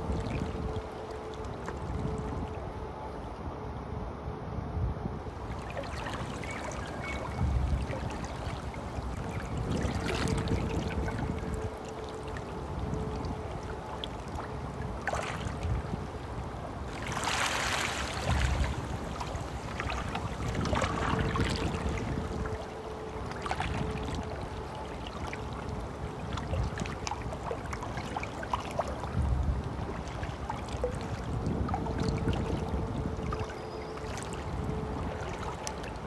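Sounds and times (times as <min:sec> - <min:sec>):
stream babbling: 0:00.0 - 0:03.3, 0:05.3 - 0:36.0.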